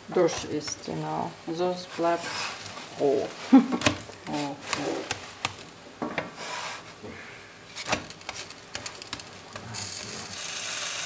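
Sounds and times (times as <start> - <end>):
steady hiss: 0.0 - 11.0
wooden spatula scraping flatbread: 1.8 - 2.9, 4.3 - 5.4.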